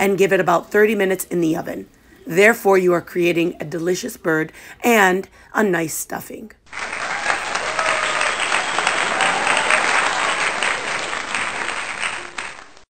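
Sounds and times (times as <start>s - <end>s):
crowd applauding: 6.7s - 12.9s.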